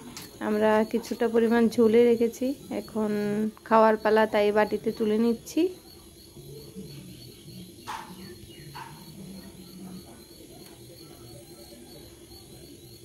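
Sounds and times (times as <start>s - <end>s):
faint high chirping: 0.0s - 13.0s.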